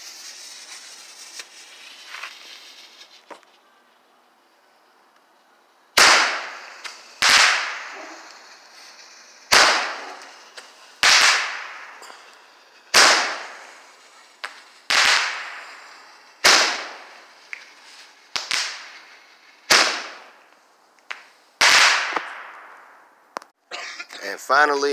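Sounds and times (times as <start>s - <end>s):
roman candle bangs: 6.0s - 8.4s, 9.5s - 13.6s
small pops: 14.4s - 15.5s, 17.5s - 18.8s, 19.7s - 22.6s.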